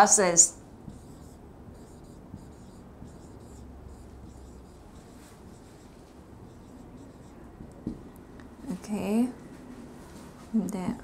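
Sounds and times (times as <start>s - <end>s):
marker scratching on whiteboard: 0.8s - 7.9s.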